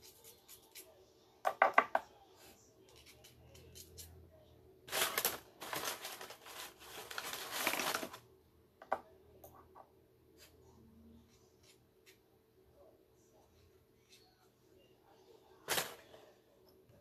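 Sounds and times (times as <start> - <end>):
wrappers rustling and crinkling: 4.9 - 8.2.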